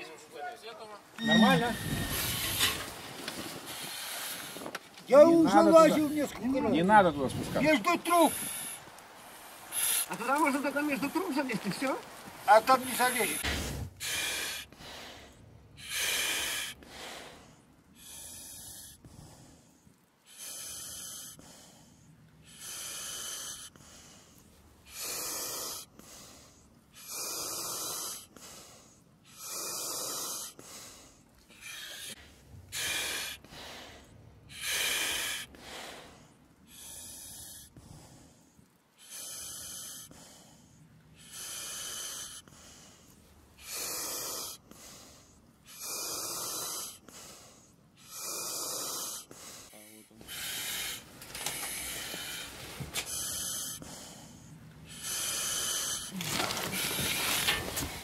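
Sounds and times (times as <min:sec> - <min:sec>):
person breathing heavily: 0:12.9 - 0:58.0.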